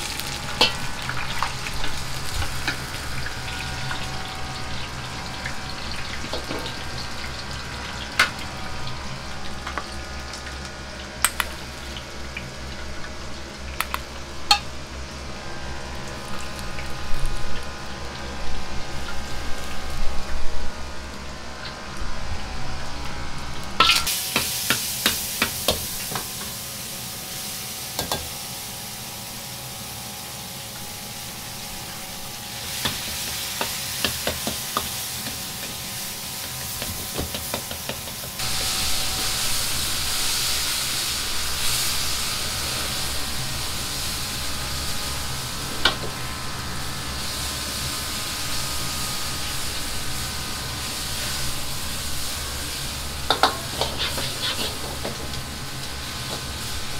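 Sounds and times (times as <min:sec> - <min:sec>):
gas burner humming: 0:00.0 - 0:56.9
meat sizzling in a wok: 0:00.0 - 0:56.9
metal ladle scraping wok: 0:53.3 - 0:55.2.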